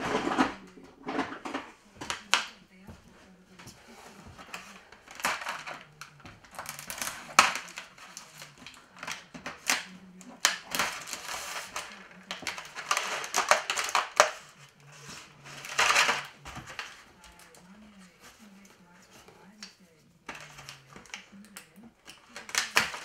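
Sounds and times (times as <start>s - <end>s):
knocks and clatters: 0.0s - 3.0s
plastic trays rustling and crackling: 0.0s - 23.0s.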